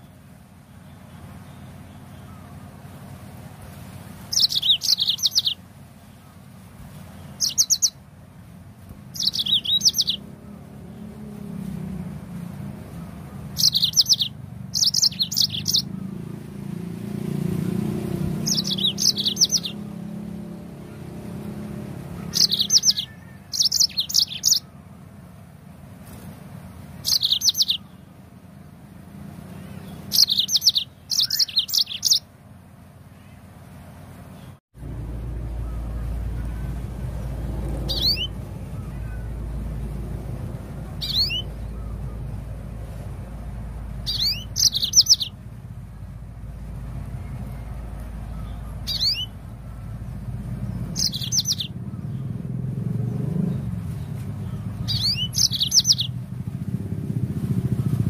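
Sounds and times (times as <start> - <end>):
canary singing: 4.2 - 6.3, 7.1 - 8.0, 8.9 - 25.2, 26.9 - 28.2, 29.2 - 32.3, 34.3 - 56.8
low rumble: 34.8 - 55.2.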